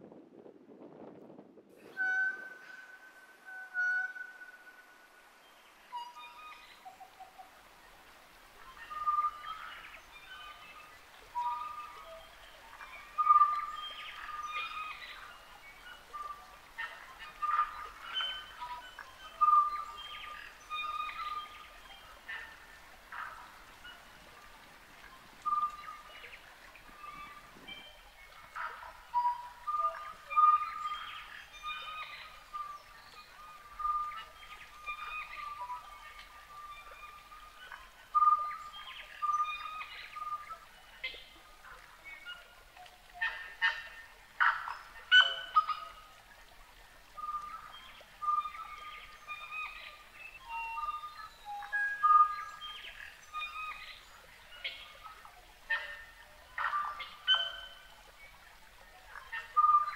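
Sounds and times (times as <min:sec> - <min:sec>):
birds singing: 0:08.6 - 0:59.9.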